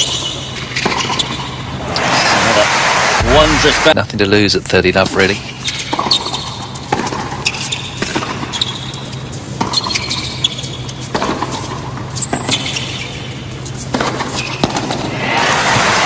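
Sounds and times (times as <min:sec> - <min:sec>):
shoes squeaking on court: 0:00.0 - 0:01.7, 0:05.4 - 0:15.0
steady low hum: 0:00.0 - 0:16.0
tennis ball hit by rackets: 0:11.1 - 0:11.6, 0:13.9 - 0:15.1.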